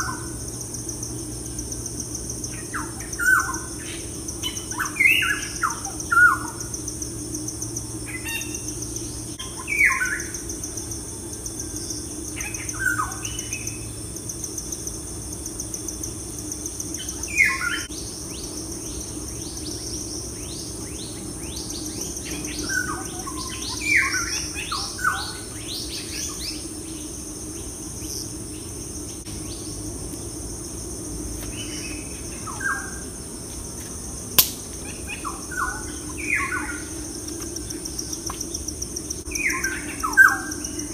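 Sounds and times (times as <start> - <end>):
high insect trill: 0.0 - 40.9
birds whistling calls: 8.1 - 10.4, 39.3 - 40.9
sharp click: 34.4 - 34.8.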